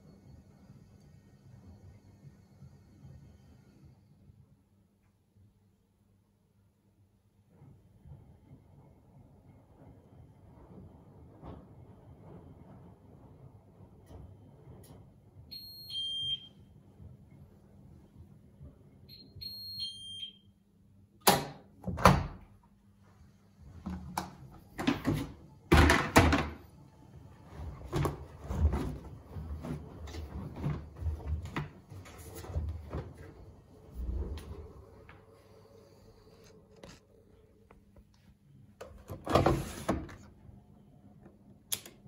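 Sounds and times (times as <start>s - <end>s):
washing machine two-note beep: 15.5s - 16.7s, 19.1s - 20.6s
washing machine door clunks: 21.2s - 22.4s, 23.9s - 26.6s.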